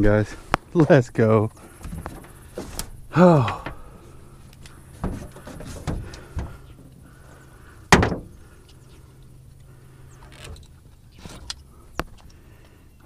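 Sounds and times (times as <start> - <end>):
thuds on metal boat deck: 5.0 - 6.7, 7.9 - 8.3.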